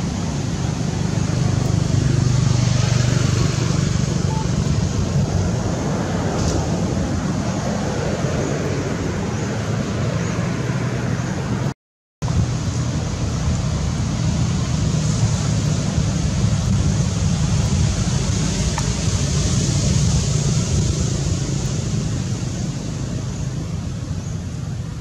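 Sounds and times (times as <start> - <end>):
outdoor low rumble: 0.0 - 25.0.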